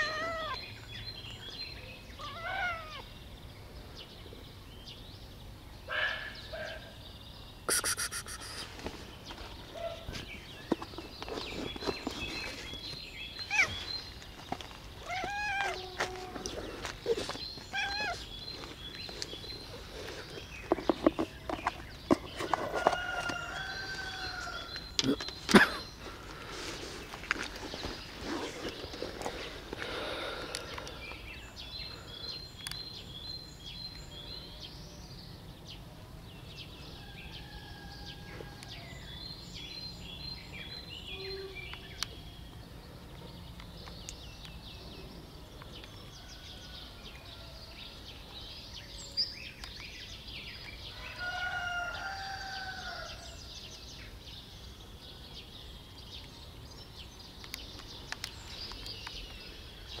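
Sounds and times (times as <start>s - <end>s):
small birds chirping: 0.0s - 60.0s
drawn-out falling bird call: 7.7s - 9.0s.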